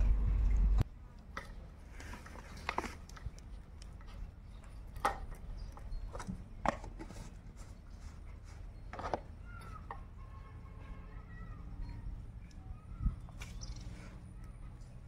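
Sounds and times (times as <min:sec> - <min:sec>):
low steady rumble: 0:00.0 - 0:00.8.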